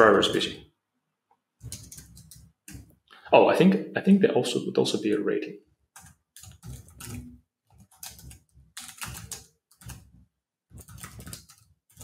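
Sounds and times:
computer keyboard typing: 1.6s - 2.9s, 6.0s - 12.0s.

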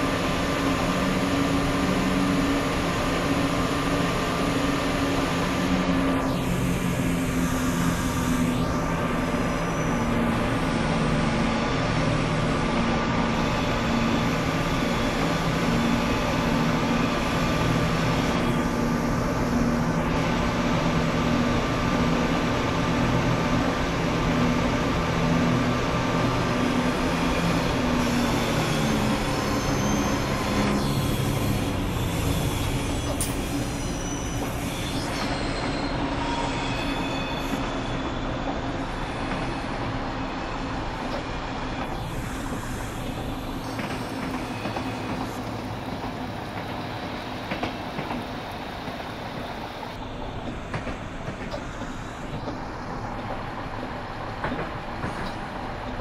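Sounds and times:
train engine drone: 0.0s - 56.0s
train wheel squeals: 11.4s - 18.8s, 26.2s - 56.0s.

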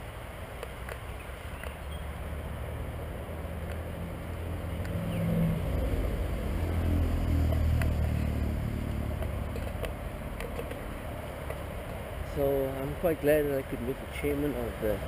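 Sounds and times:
vehicle engine passing: 2.2s - 11.4s.

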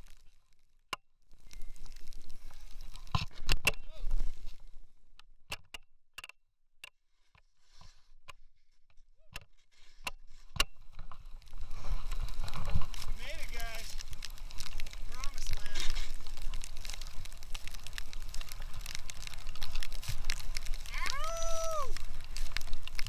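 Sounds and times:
sharp ticks and knocks: 5.2s - 7.5s.

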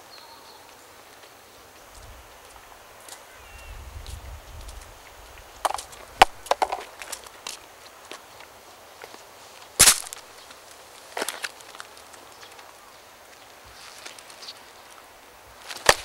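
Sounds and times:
footsteps on stone and gravel: 0.6s - 16.0s
paper carton crackling: 15.7s - 16.0s.

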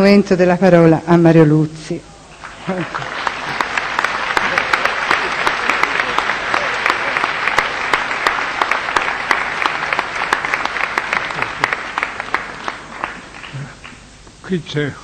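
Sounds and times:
audience applauding: 2.3s - 14.1s.

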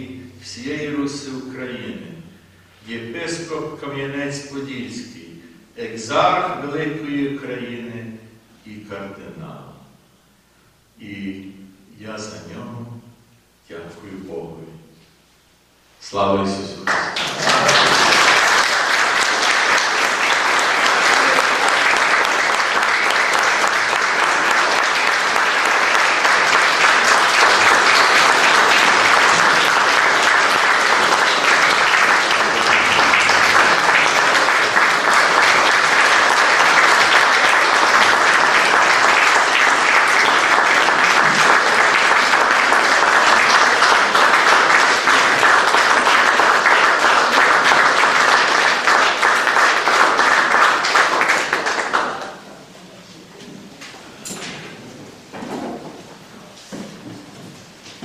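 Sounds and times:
audience applauding: 16.8s - 52.5s.

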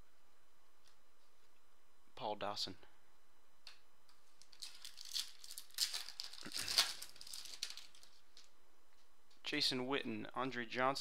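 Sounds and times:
foil wrapper crinkling and tearing: 4.4s - 8.5s.

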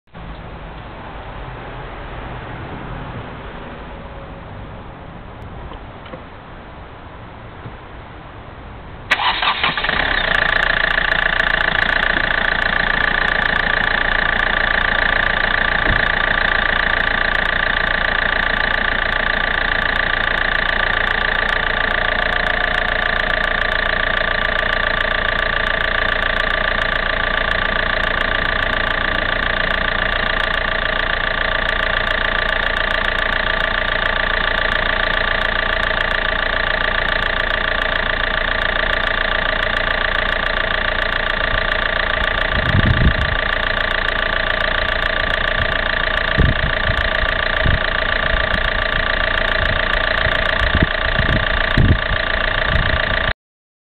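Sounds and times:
diesel engine cranking and idling: 0.1s - 53.4s.

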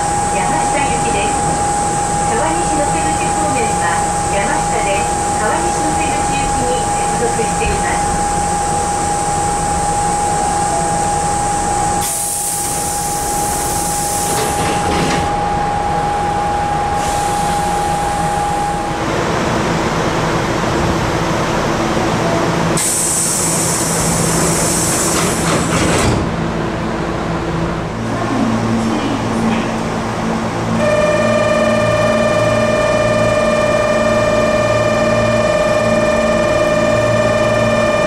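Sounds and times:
steady high whine: 0.0s - 24.0s, 26.8s - 38.0s
train running noise: 0.0s - 38.0s
air hissing from train doors: 12.0s - 15.3s, 17.0s - 17.8s, 22.7s - 26.3s.

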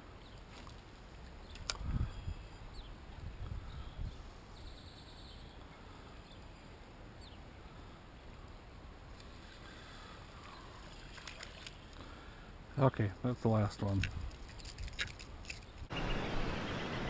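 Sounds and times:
wind rumble on microphone: 1.6s - 4.4s
bird chirps: 3.7s - 7.4s, 15.6s - 17.0s.

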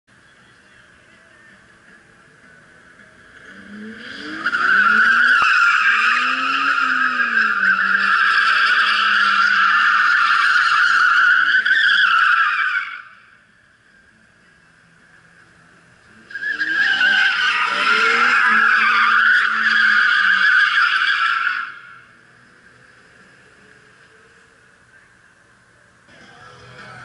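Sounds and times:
tires squealing: 3.0s - 14.0s, 15.6s - 25.1s
car engine revving: 3.2s - 13.4s, 15.7s - 24.7s.

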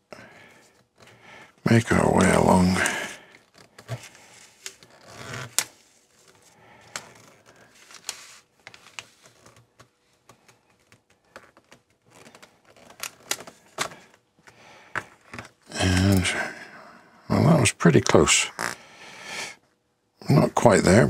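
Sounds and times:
paper backing rustling and crackling: 0.6s - 16.3s.

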